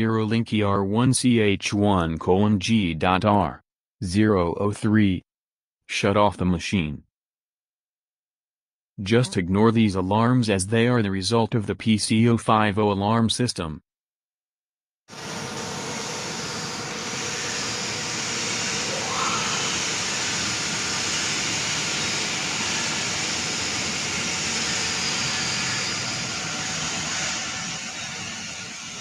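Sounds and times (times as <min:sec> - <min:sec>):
lathe machinery whooshing: 0:15.2 - 0:29.0
faint rising tone: 0:18.7 - 0:20.6.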